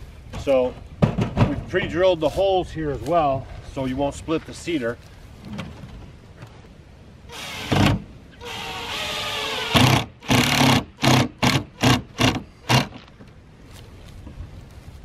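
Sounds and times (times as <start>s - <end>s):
cordless drill driving screws: 7.3s - 13.0s.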